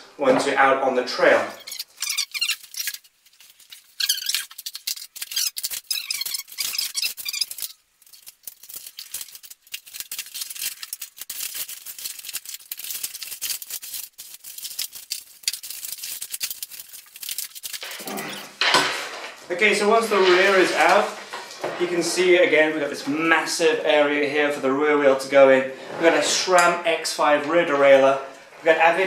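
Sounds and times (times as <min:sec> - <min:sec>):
faint squeaks: 0:01.5 - 0:03.1, 0:04.0 - 0:07.8
plastic packaging crinkling: 0:01.6 - 0:18.6.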